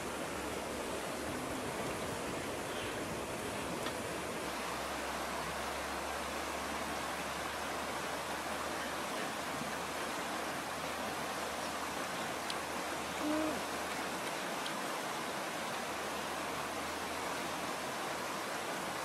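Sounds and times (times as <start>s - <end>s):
fast river rushing: 0.0s - 19.0s
low hoot-like tone: 13.1s - 13.7s.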